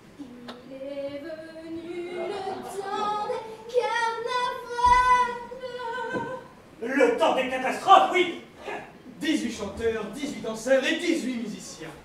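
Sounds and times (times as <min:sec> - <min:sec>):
woman singing: 0:00.2 - 0:06.6.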